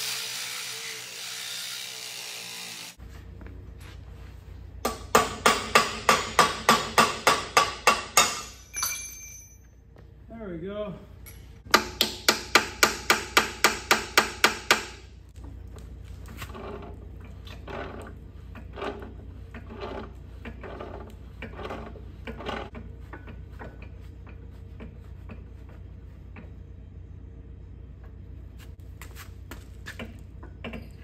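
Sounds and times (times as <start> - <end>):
wrench scraping and clanking: 16.4 - 25.4.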